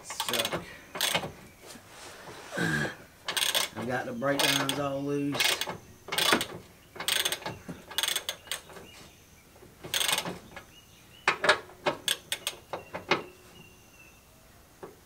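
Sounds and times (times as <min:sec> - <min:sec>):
sharp metallic clicks: 0:00.0 - 0:01.3, 0:03.2 - 0:08.8, 0:09.8 - 0:13.3
ratchet wrench clicking: 0:00.3 - 0:01.2, 0:03.2 - 0:03.8, 0:04.4 - 0:08.7, 0:09.9 - 0:10.3.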